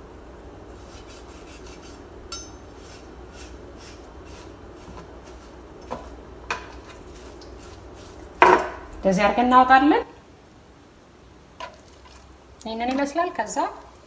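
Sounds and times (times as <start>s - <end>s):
sharp ringing clink: 2.3s - 2.6s.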